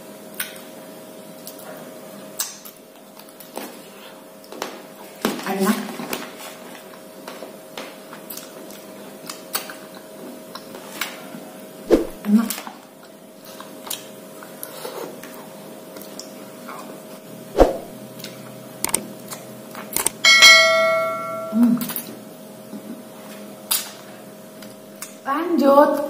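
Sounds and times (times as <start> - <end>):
licking and biting ice cream: 18.2 - 20.2
sharp click: 18.8 - 19.0, 20.0 - 20.2
bell chime: 20.3 - 21.7.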